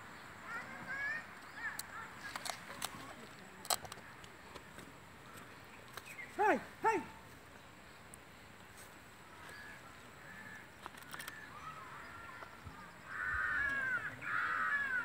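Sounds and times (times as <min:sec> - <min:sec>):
crows cawing: 0:09.6 - 0:15.0.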